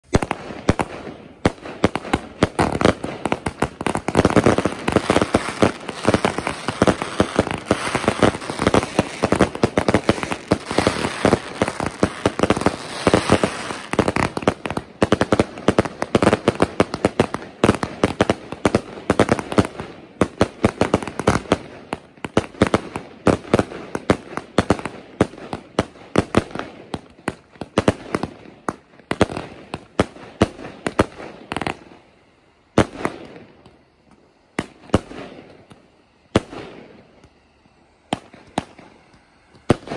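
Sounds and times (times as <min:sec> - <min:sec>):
fireworks banging: 0:00.0 - 0:39.9.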